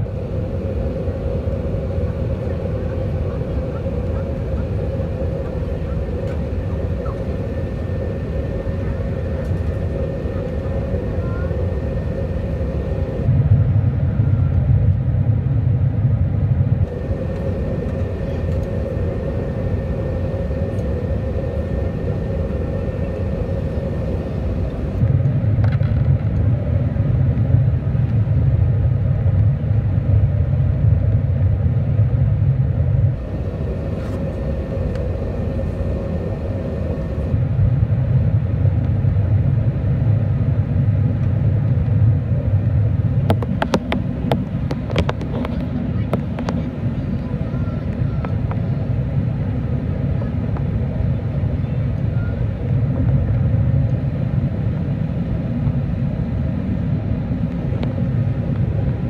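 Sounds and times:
aircraft cabin engine rumble: 0.0s - 59.0s
constant hum: 0.0s - 59.0s.

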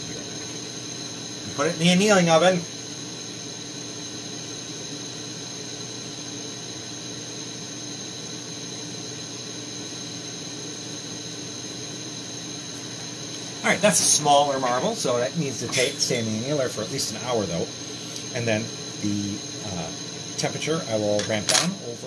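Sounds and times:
torch burning with steady hiss: 0.0s - 22.0s.

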